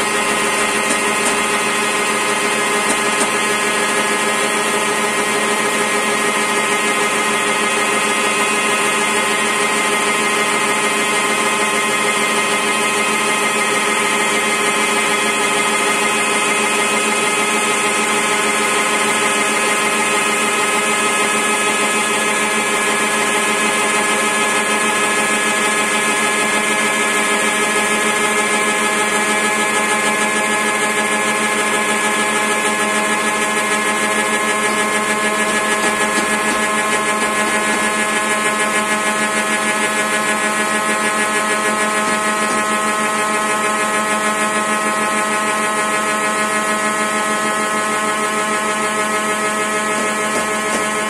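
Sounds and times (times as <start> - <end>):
cnc spindle whine: 0.0 - 51.0.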